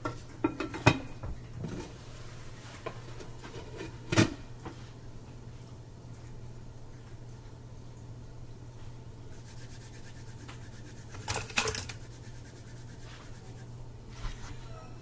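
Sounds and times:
steady low hum: 4.4 - 15.0
hands rubbing together: 9.3 - 14.7.

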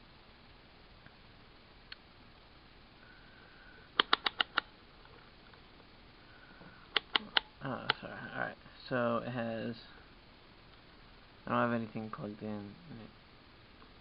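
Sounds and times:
rotary dial clicking: 4.0 - 4.7.

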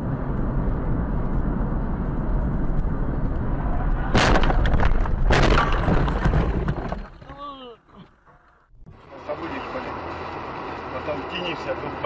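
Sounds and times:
car road and engine rumble: 0.0 - 12.0
car crash with windshield cracking: 4.1 - 7.4.

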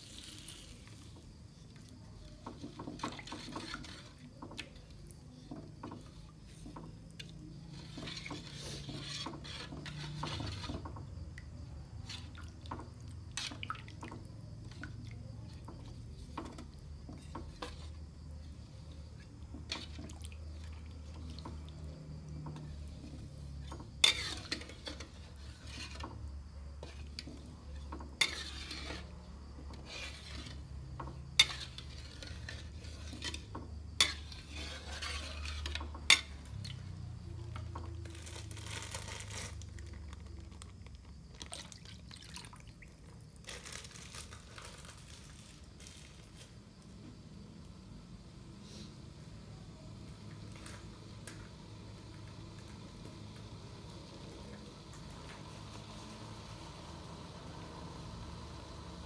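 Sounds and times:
metal spatula scraping a wok: 0.0 - 1.2, 2.4 - 4.4, 5.4 - 11.1, 11.9 - 13.6, 16.1 - 18.0, 21.2 - 39.7.

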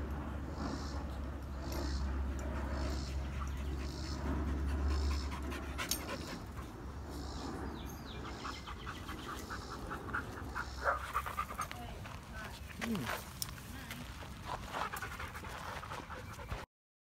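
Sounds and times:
dog panting: 1.6 - 6.8, 8.2 - 13.2, 14.0 - 16.6.

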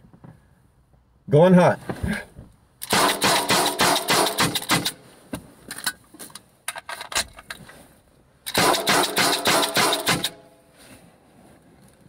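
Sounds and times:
launcher firing sharp pops: 2.8 - 5.0, 8.5 - 10.4
rounds hitting target: 2.8 - 5.0, 8.5 - 10.4.

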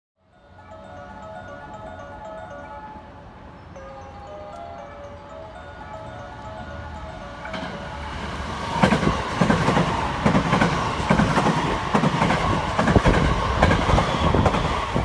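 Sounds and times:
train rumble: 0.5 - 15.0
train wheels clacking over rail joints: 8.7 - 15.0.

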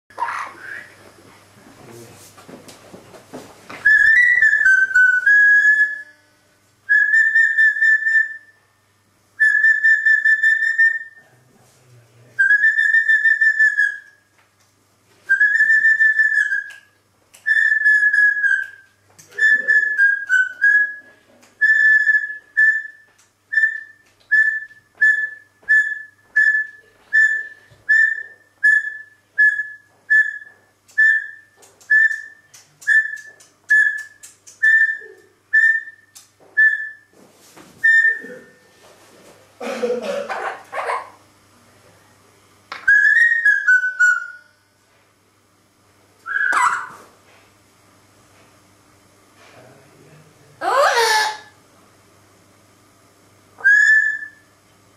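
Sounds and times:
parrot whistling: 0.4 - 1.0, 3.8 - 6.2, 6.9 - 8.6, 9.4 - 11.2, 12.4 - 14.2, 15.3 - 18.8, 19.4 - 37.1, 37.8 - 38.5, 42.7 - 44.6, 46.2 - 47.1, 50.6 - 51.6, 53.6 - 54.4.

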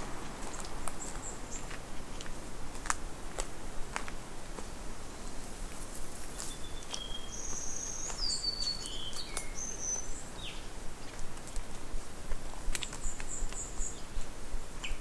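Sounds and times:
footsteps crunching on leaf litter: 0.0 - 9.7
birds calling: 5.1 - 11.2.

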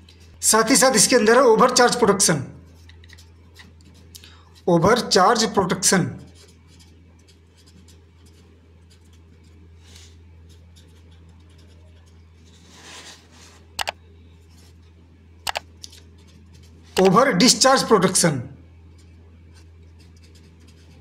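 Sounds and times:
low steady hum: 0.0 - 21.0
pen scratching on paper: 0.2 - 13.7, 16.0 - 17.2, 18.9 - 21.0.

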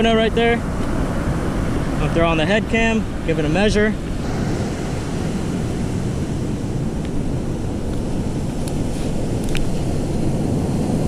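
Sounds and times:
surf washing: 0.0 - 11.0
wind buffeting microphone: 0.0 - 11.0.

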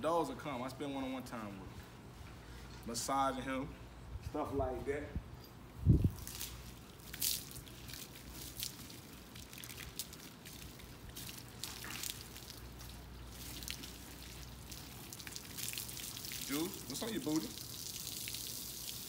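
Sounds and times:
water dripping: 6.0 - 19.0
hose sprayer hissing and splashing: 6.2 - 19.0.

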